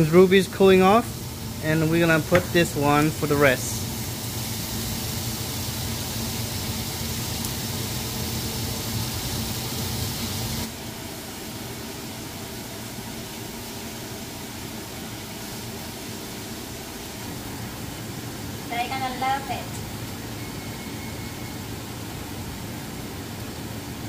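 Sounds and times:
steak sizzling in a grill pan: 0.0s - 11.0s.

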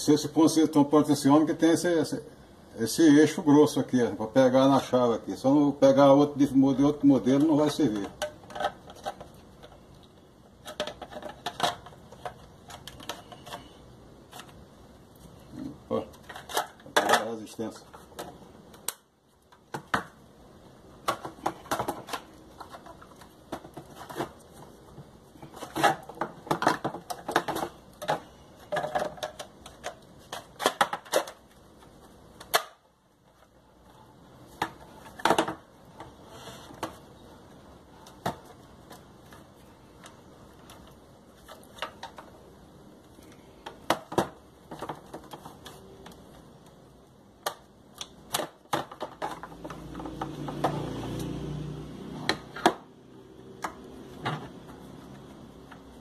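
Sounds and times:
plastic clicks knocks and rattles: 25.7s - 31.6s.

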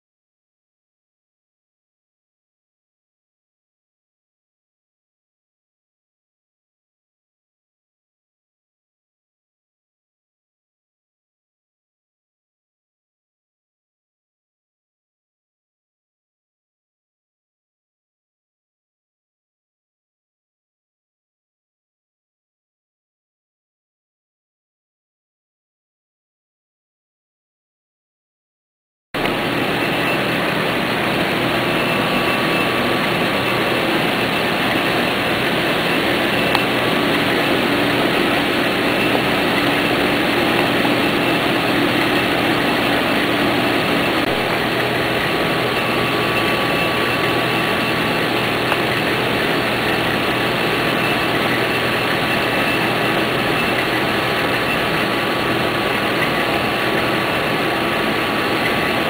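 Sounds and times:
faint steady tones: 29.2s - 59.0s
printer machine whirr: 29.2s - 59.0s.

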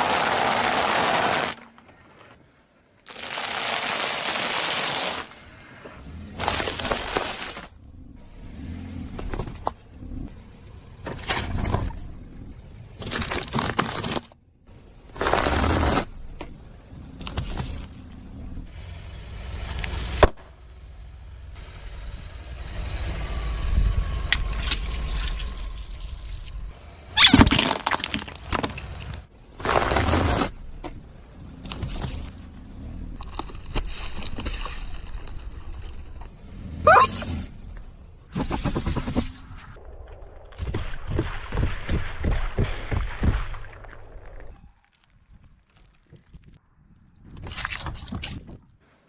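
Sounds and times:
car rumble: 5.4s - 33.7s, 34.3s - 40.7s
tyre crushing crunchy objects: 6.3s - 7.8s, 27.2s - 30.9s.

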